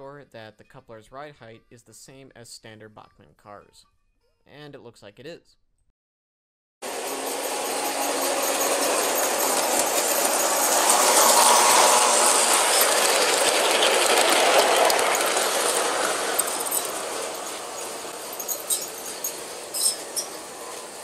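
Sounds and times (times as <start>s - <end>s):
locomotive motor hum: 6.8s - 21.0s
model train wheels rattling on rails: 6.8s - 21.0s.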